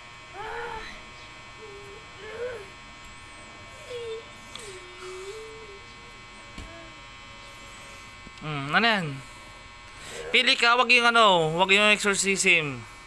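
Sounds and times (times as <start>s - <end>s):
faint electrical hum: 0.0s - 13.0s
child fussing and crying: 0.3s - 8.2s, 9.3s - 10.8s.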